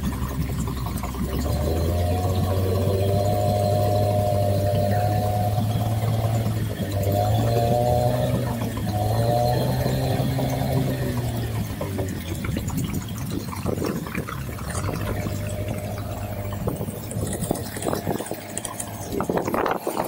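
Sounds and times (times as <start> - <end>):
motorboat engine running: 0.0 - 20.0
water splashing against hull: 0.0 - 20.0.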